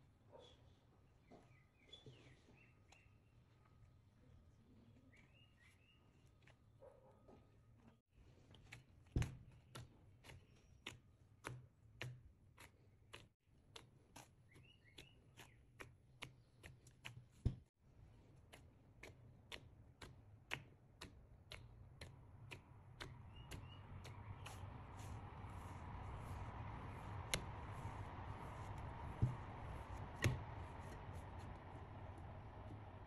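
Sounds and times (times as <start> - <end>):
hands kneading dough: 1.5 - 33.0.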